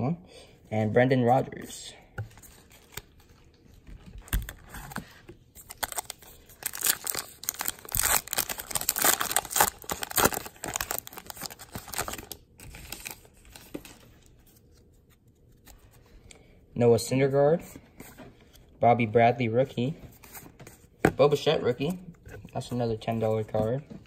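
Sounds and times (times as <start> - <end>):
paper wrapper tearing and crinkling: 5.6 - 14.0.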